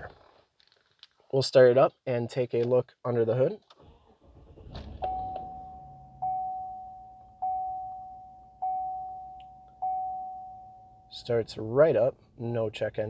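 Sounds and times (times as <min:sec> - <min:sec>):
truck engine starting and idling: 0:03.7 - 0:08.8
dashboard warning chime dinging: 0:05.0 - 0:11.5.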